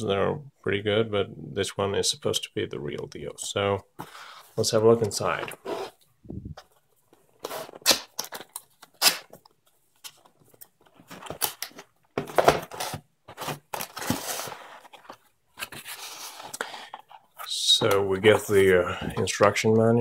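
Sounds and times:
cardboard scraping and rubbing: 0:05.4 - 0:06.0, 0:12.4 - 0:16.5.

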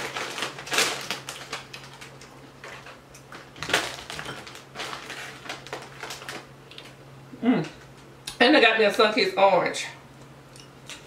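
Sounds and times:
foil chip bag crinkling: 0:00.0 - 0:07.0
chips rattling onto a plate: 0:03.6 - 0:06.4.

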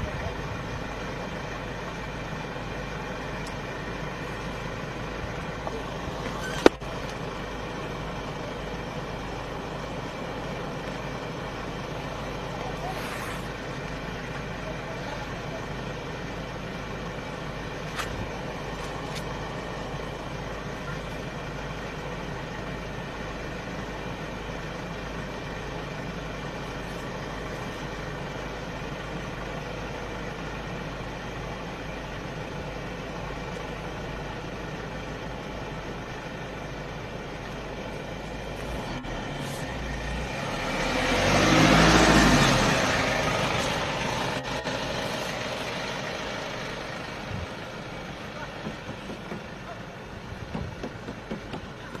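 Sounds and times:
vehicle engines idling: 0:00.0 - 0:52.0
engine revving louder: 0:38.5 - 0:47.2.

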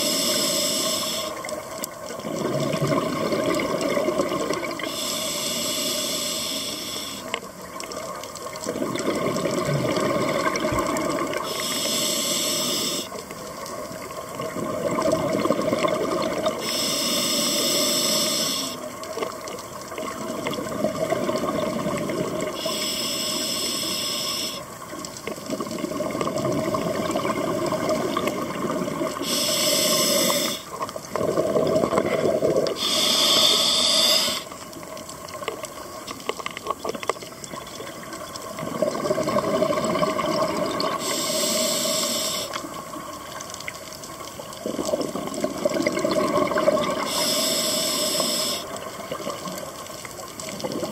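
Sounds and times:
regulator inhalation hiss: 0:00.0 - 0:01.5, 0:04.8 - 0:07.4, 0:11.4 - 0:13.2, 0:16.6 - 0:18.9, 0:22.6 - 0:24.7, 0:29.2 - 0:30.8, 0:32.8 - 0:34.6, 0:40.9 - 0:42.6, 0:47.0 - 0:48.8
exhaled bubbles bubbling: 0:01.1 - 0:05.0, 0:07.4 - 0:11.7, 0:12.9 - 0:16.7, 0:18.7 - 0:22.7, 0:24.6 - 0:33.0, 0:34.4 - 0:47.3, 0:48.1 - 0:50.9.

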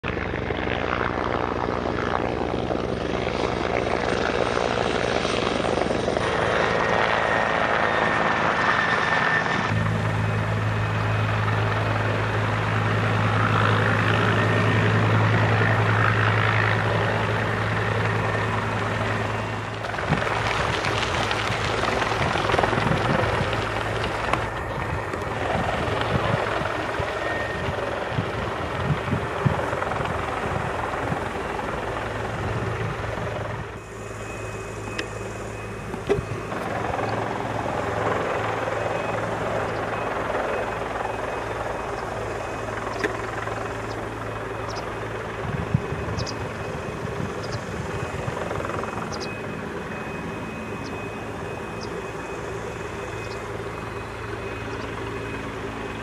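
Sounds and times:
helicopter rotor and turbine: 0:00.0 - 0:56.0
low hum: 0:09.4 - 0:56.0
thin high whine: 0:33.6 - 0:37.3.

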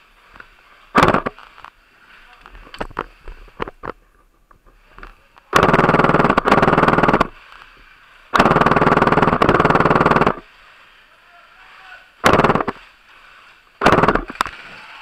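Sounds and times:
gel blaster rapid shots: 0:01.0 - 0:01.4, 0:05.5 - 0:07.4, 0:08.4 - 0:10.4, 0:12.2 - 0:12.8, 0:13.8 - 0:14.4.

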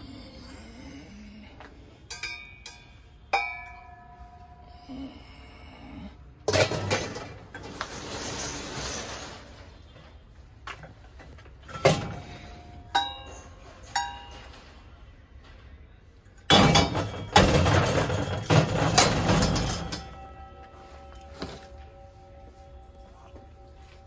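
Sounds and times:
brass lamps clinking: 0:02.0 - 0:04.6, 0:11.6 - 0:14.9, 0:16.4 - 0:24.0.

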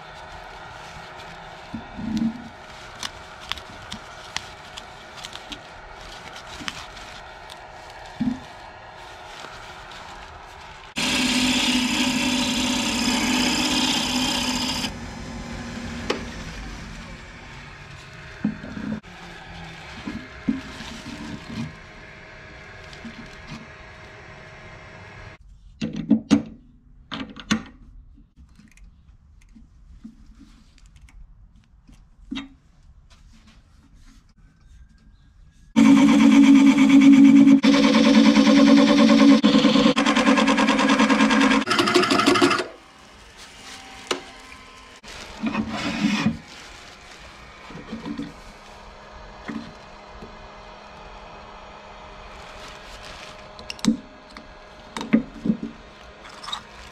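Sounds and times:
wood lathe motor running: 0:10.8 - 0:19.1, 0:35.8 - 0:46.6.

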